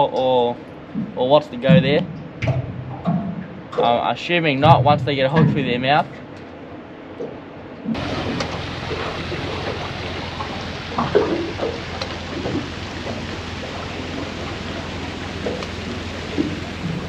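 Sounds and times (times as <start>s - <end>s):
low steady hum: 0.0s - 17.0s
wind and water rushing: 7.8s - 17.0s
splashes knocking against hull: 7.9s - 17.0s.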